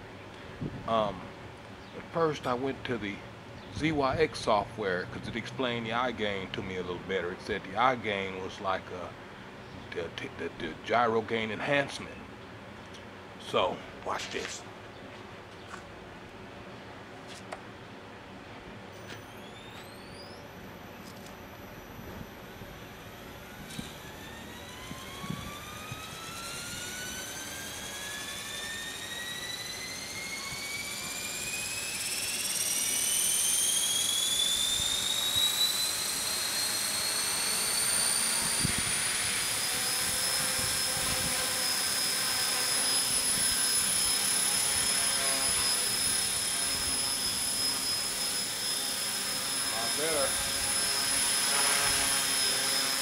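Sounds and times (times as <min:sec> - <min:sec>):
model helicopter motor whine: 0:18.9 - 0:53.0.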